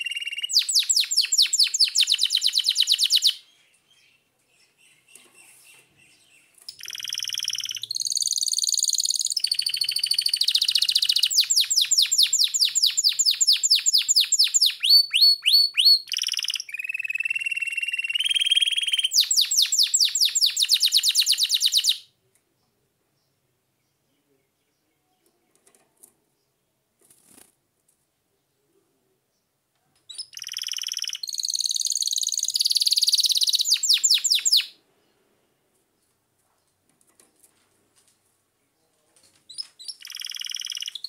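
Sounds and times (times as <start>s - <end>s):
canary singing trills: 0.0s - 22.1s, 30.1s - 34.8s, 39.5s - 41.0s.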